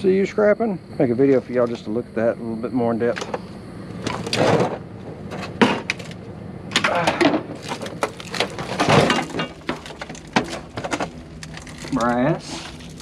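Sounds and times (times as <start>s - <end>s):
leaves rustling: 7.5s - 13.0s
footsteps crunching on dry leaves: 7.6s - 13.0s.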